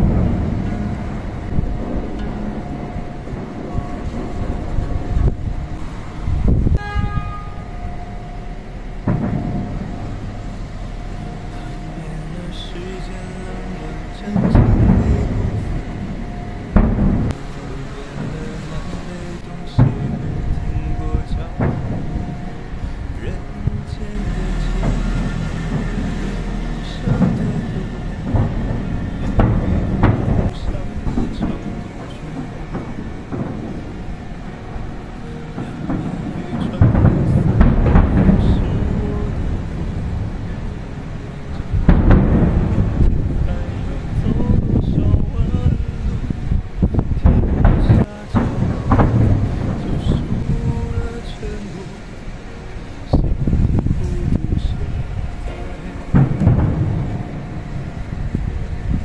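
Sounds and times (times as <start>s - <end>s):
continuous low rumble: 0.0s - 59.0s
horn-like tone: 2.1s - 41.8s
fireworks exploding thuds: 9.0s - 51.8s, 53.1s - 59.0s.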